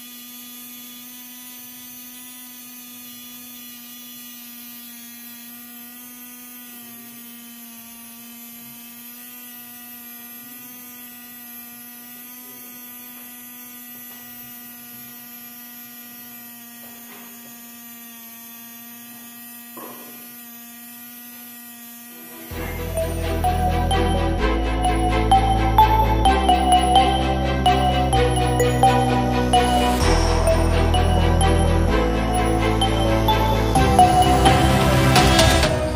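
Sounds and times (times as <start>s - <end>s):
small motor humming: 0.0s - 23.5s.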